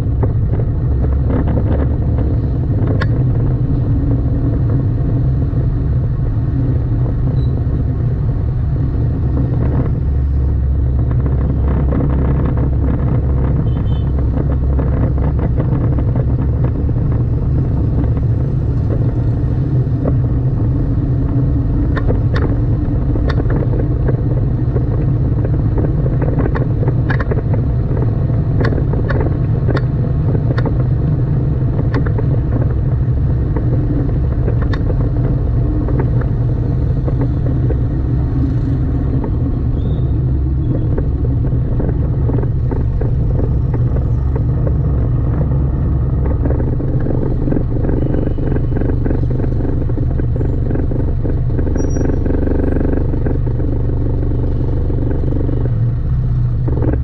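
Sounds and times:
car engine and tyre rumble: 0:00.0 - 0:57.0
sharp clicks: 0:11.0 - 0:55.8.

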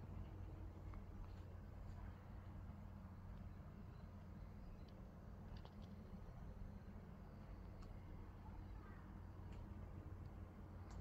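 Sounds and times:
faint clicks: 0:09.5 - 0:11.0.

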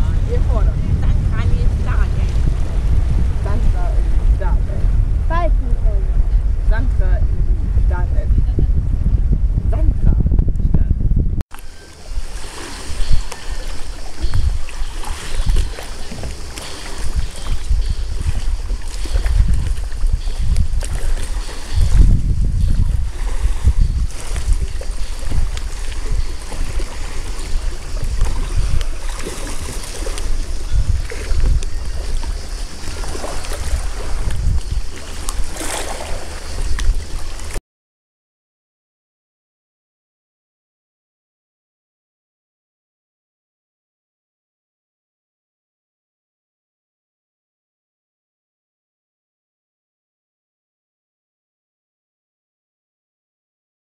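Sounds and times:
sea water lapping: 0:00.0 - 0:08.7, 0:11.5 - 0:37.6
wind buffeting microphone: 0:00.0 - 0:37.6.

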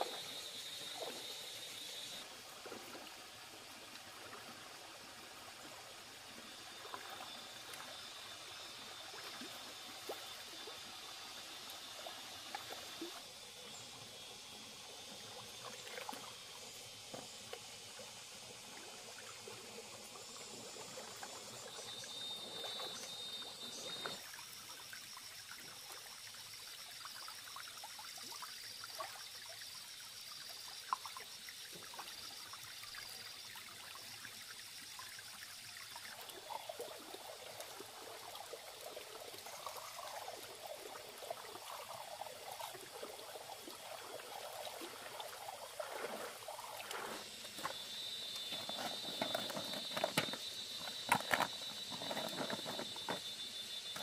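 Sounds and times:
water sloshing and trickling: 0:00.0 - 0:08.2, 0:08.8 - 0:29.8, 0:30.4 - 0:54.0.

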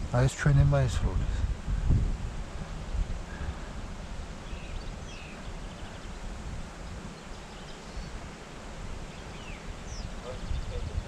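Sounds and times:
wind on microphone: 0:00.0 - 0:11.0
faint bird chirps: 0:02.8 - 0:06.2, 0:06.8 - 0:08.4, 0:09.0 - 0:11.0.

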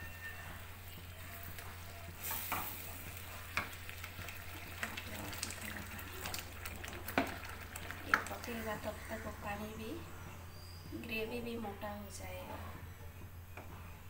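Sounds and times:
gravy sizzling in a pan: 0:00.6 - 0:09.5
wooden spatula stirring: 0:00.9 - 0:08.8.

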